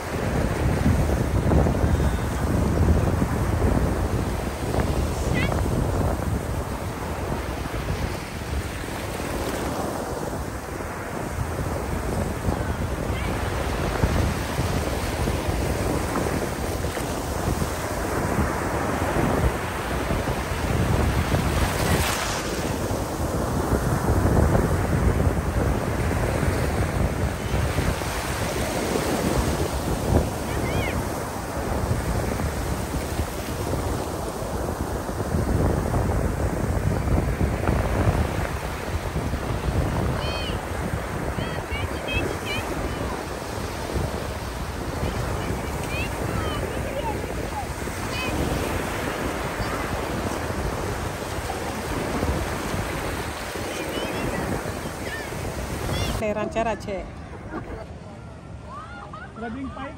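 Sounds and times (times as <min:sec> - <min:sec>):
sea waves washing on beach: 0:00.0 - 0:59.9
wind buffeting microphone: 0:00.0 - 0:59.9.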